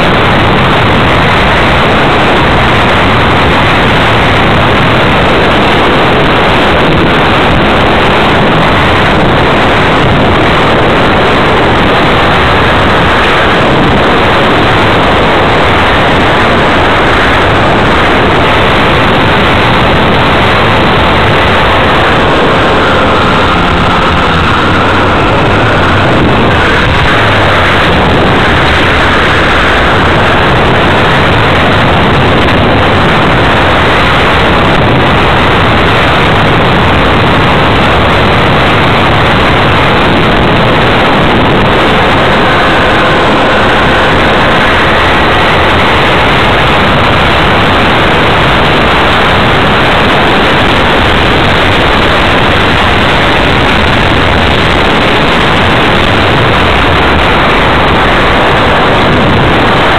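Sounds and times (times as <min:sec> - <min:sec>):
faint whine: 0:00.0 - 0:59.9
model plane rushing noise: 0:00.0 - 0:59.9.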